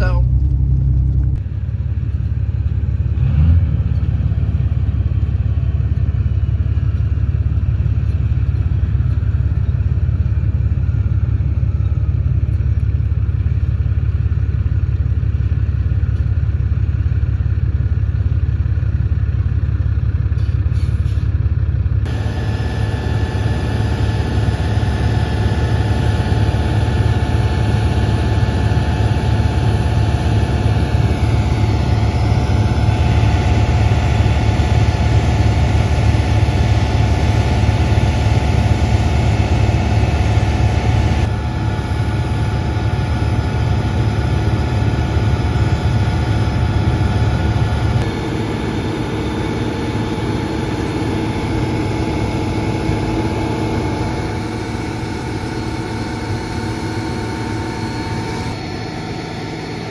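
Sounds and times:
tractor engine drone: 0.0s - 59.9s
grain auger whine: 22.0s - 59.9s.

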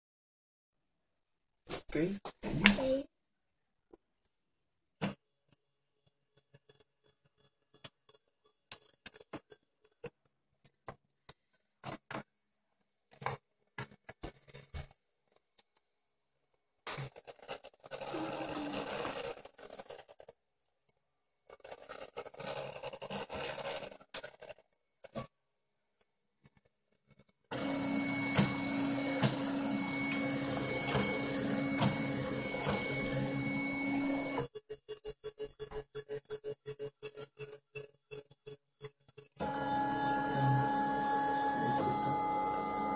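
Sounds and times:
stepper motor ticks and buzzing: 27.6s - 36.4s.

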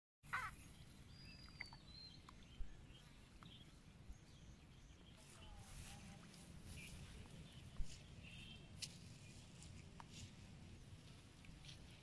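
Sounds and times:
bird chirp: 0.3s - 9.7s.

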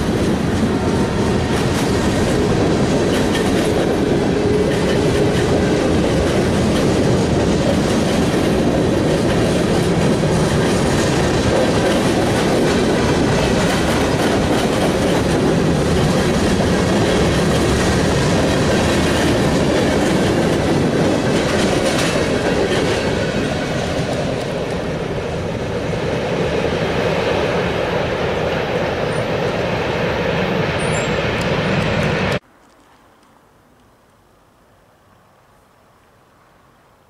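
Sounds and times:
freight train wheels rumbling: 0.0s - 32.4s
wheels clickety-clack over joints: 1.4s - 24.9s.

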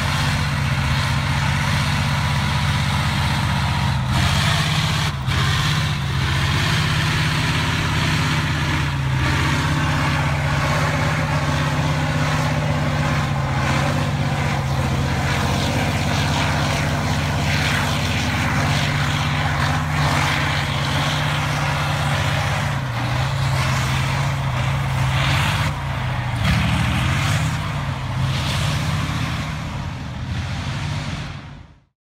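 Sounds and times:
tank diesel engine running hard: 0.0s - 31.9s.

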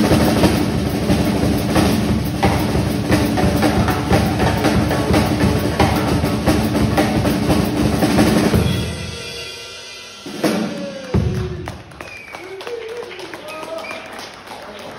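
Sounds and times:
sharp drum hit: 0.0s - 11.6s
fast drum roll: 0.0s - 12.0s.

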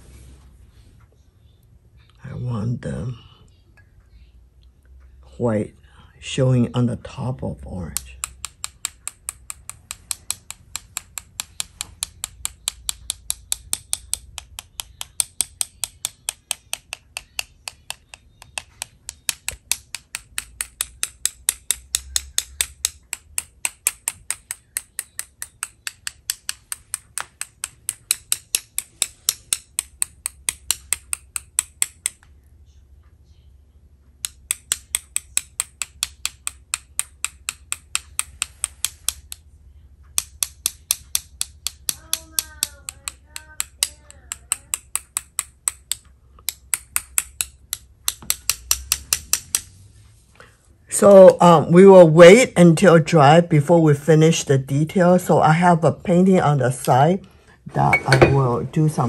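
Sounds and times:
paintbrush tapping: 7.8s - 32.3s, 34.1s - 49.7s, 57.7s - 58.7s.

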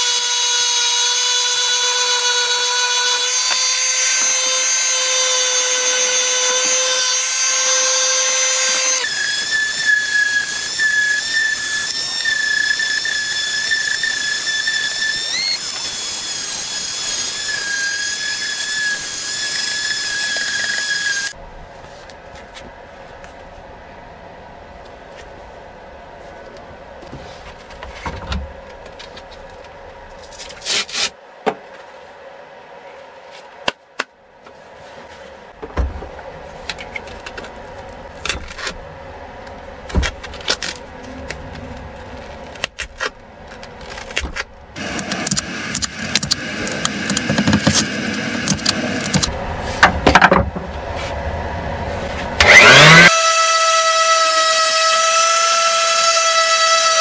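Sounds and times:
sander motor whining: 52.4s - 57.0s.

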